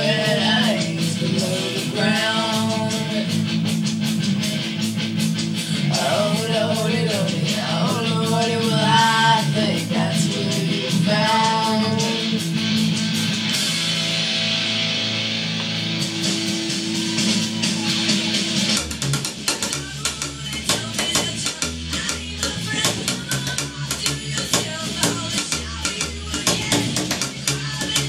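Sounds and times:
person singing: 0.0s - 3.5s, 5.6s - 12.4s, 19.6s - 28.0s
rock song: 0.0s - 28.0s.

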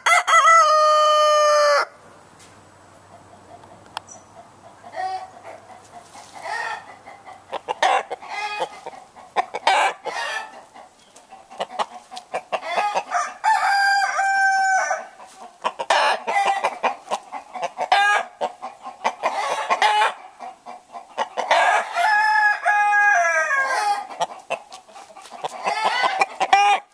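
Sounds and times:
rooster crowing: 0.0s - 2.0s, 12.6s - 15.1s, 21.5s - 24.1s
rooster clucking: 3.0s - 26.9s.

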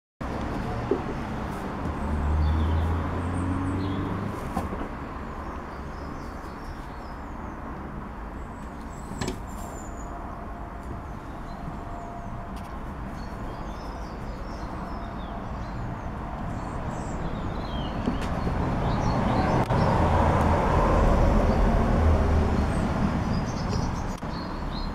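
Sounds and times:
distant traffic hum: 0.2s - 24.9s
small birds chirping: 5.0s - 10.2s, 13.1s - 20.0s, 22.6s - 24.9s.

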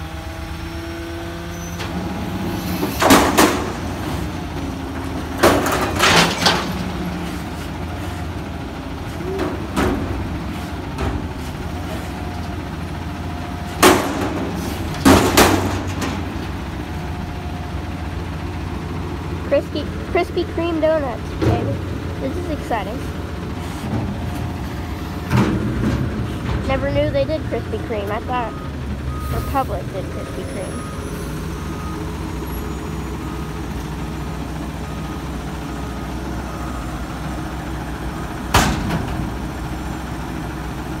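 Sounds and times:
truck engine running: 0.0s - 41.0s
metal bin banging: 2.8s - 7.3s, 9.3s - 12.1s, 13.8s - 16.6s, 23.8s - 26.9s, 38.5s - 39.5s.

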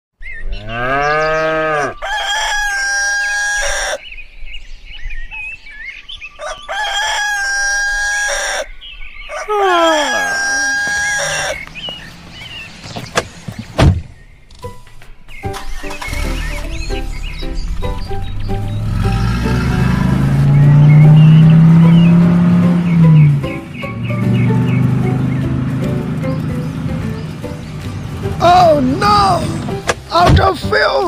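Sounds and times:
rooster crowing: 1.3s - 4.0s, 6.4s - 11.7s
sharp knocks: 12.8s - 14.2s, 29.6s - 30.5s.

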